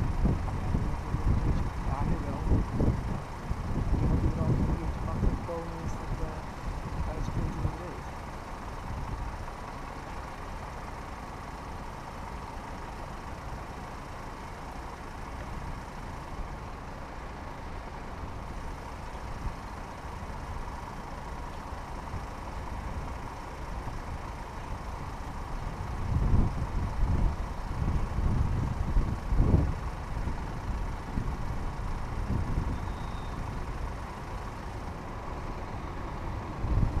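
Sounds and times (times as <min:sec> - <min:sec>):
road vehicles idling: 0:00.0 - 0:37.0
faint steady tone: 0:32.7 - 0:36.6.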